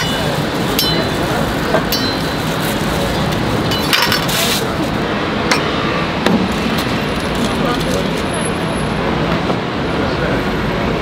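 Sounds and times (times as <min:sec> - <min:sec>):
steady background noise: 0:00.0 - 0:11.0
metal spatula clinks and knocks: 0:01.9 - 0:02.4
paper rustle: 0:04.1 - 0:05.0.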